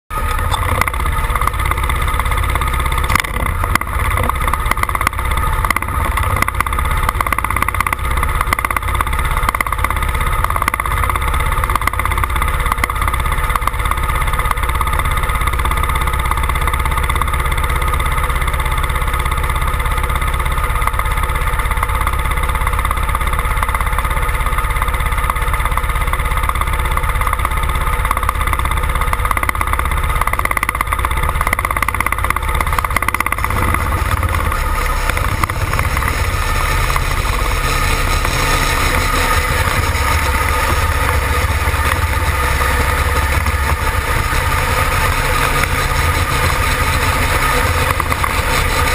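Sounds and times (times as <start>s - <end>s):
tractor engine idling: 0.1s - 48.9s.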